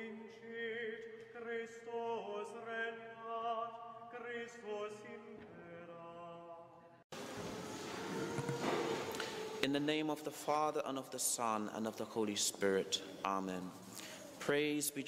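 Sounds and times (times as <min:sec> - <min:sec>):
held drone: 0:07.2 - 0:09.6.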